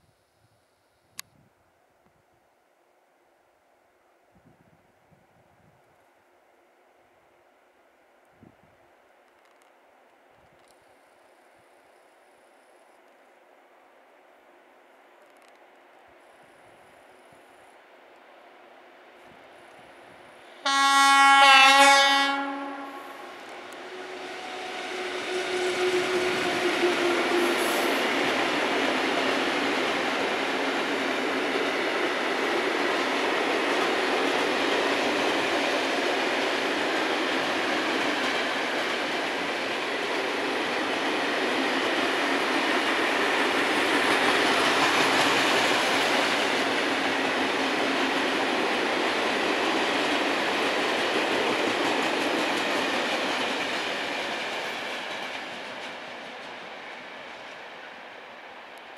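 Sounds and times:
train wheels rumbling on rails: 19.2 - 58.9.

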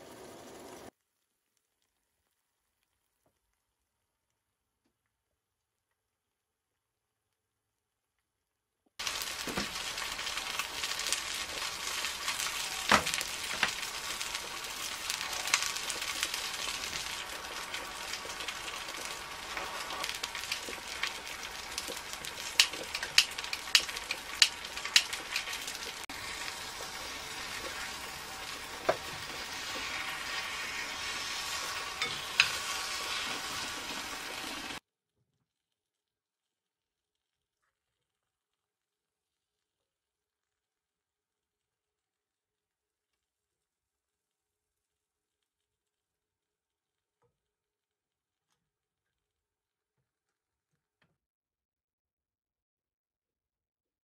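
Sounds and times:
food sizzling in a pot: 0.0 - 1.0, 9.0 - 34.8.

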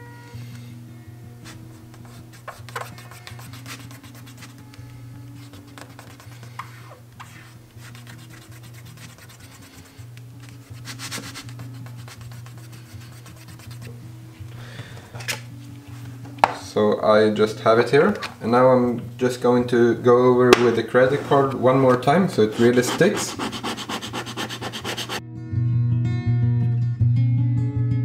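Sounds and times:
quiet background music: 0.0 - 28.0
fingertips rubbing tape on plastic: 1.4 - 14.0, 21.2 - 25.2.

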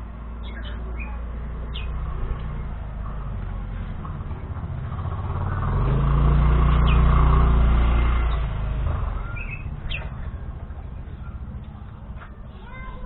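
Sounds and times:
vehicle engine passing by: 0.1 - 12.4
high bird chirps: 0.4 - 2.1, 6.7 - 7.2, 8.2 - 10.5.

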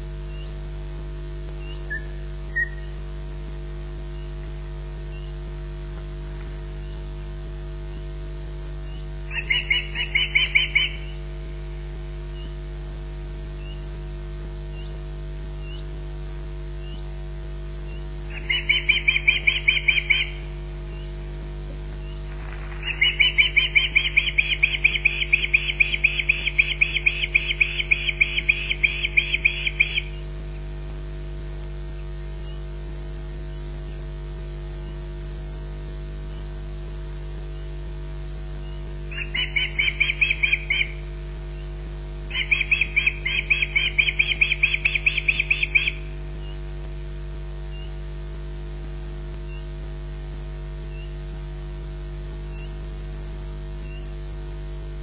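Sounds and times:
osprey warning chirps: 1.6 - 3.0, 8.8 - 11.4, 17.9 - 21.2, 22.0 - 30.4, 38.6 - 46.7.

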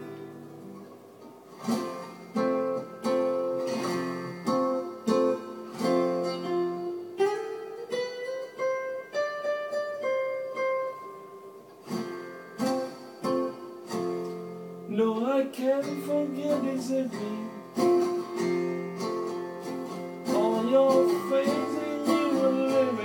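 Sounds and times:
picked guitar melody: 0.0 - 23.0
strummed guitar chords: 0.0 - 23.0.

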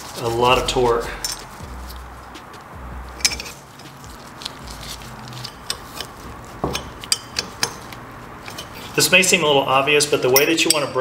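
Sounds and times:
wrench clicking on metal nuts: 5.2 - 8.8.

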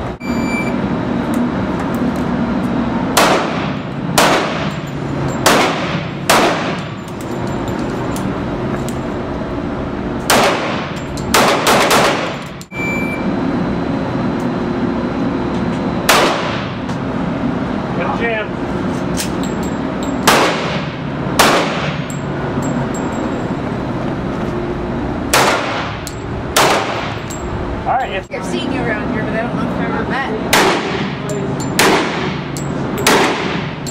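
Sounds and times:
pistol shots echoing indoors: 4.2 - 4.7, 5.5 - 6.8, 10.3 - 12.4, 16.1 - 16.6, 25.3 - 26.0, 26.6 - 27.2, 31.8 - 32.4, 33.1 - 33.7.

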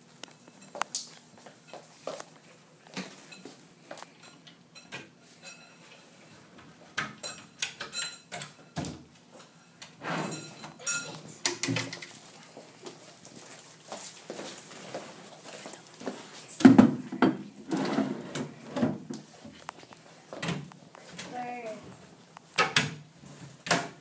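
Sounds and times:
drawer sliding out: 10.0 - 10.6, 17.6 - 19.0.

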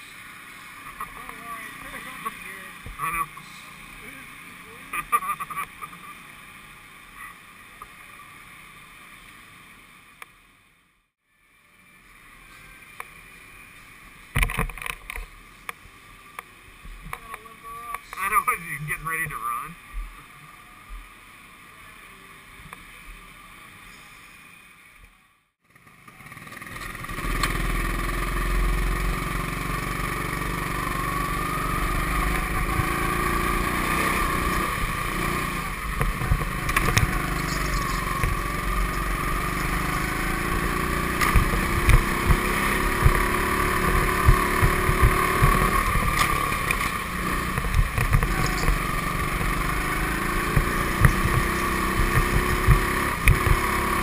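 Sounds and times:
go-kart engine: 25.6 - 54.0
kart rumbling and knocks: 26.4 - 54.0.

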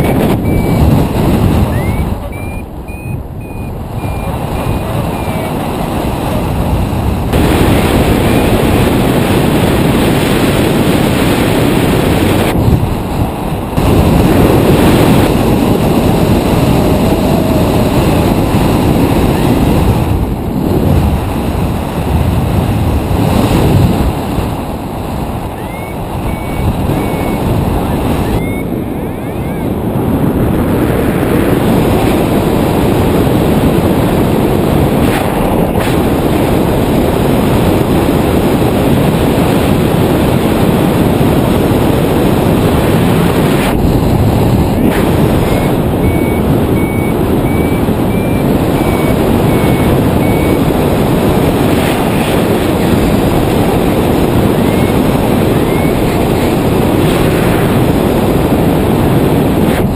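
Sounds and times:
variometer beeping: 0.0 - 5.7, 25.5 - 29.7, 44.6 - 56.6
wind rushing over microphone: 0.0 - 59.9.

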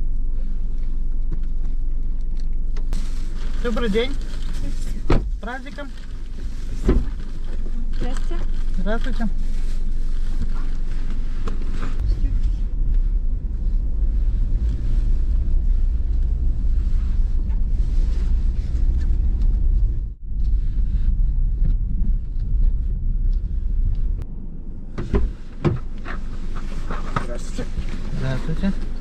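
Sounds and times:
car engine and road rumble: 0.0 - 29.0.

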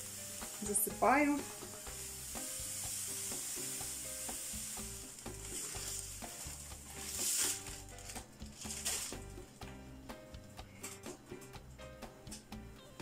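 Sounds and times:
sugar pouring into pot: 1.5 - 9.4
plastic bag crinkling: 5.4 - 9.4.

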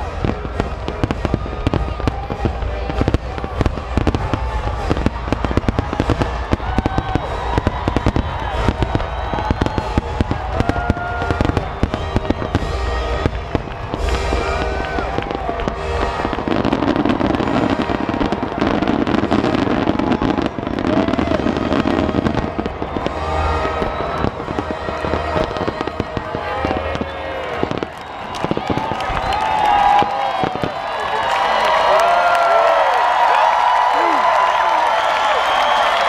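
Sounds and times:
fireworks bursting and crackling: 0.0 - 36.0.

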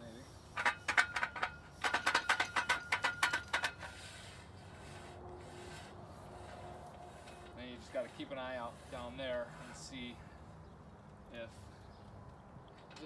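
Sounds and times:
part rattling inside metal pole: 0.6 - 4.0.

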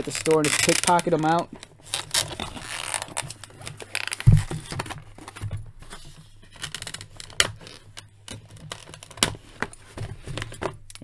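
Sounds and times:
cardboard packaging rustling: 0.0 - 11.0
dull thump: 4.3 - 4.8.

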